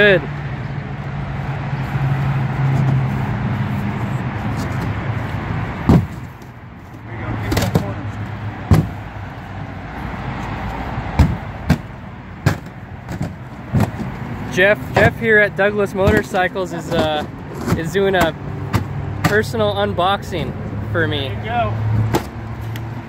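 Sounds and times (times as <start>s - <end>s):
cardboard crate knocks and thuds: 5.9s - 6.4s, 8.7s - 9.0s, 11.2s - 14.1s.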